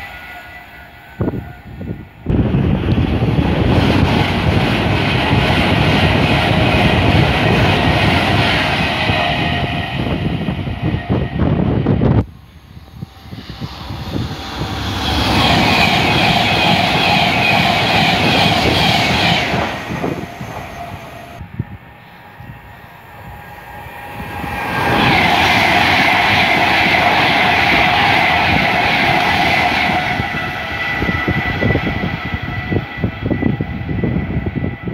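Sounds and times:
electric trains passing at speed: 0.0s - 34.9s
high ringing tone: 9.0s - 28.2s.

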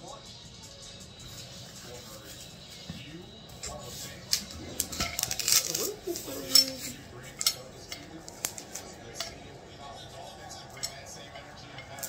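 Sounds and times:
metal pole sections clicking: 3.5s - 12.0s.

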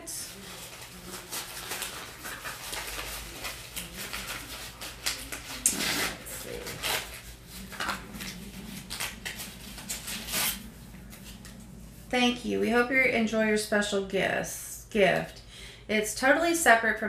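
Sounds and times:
paper crinkling: 0.0s - 11.8s.

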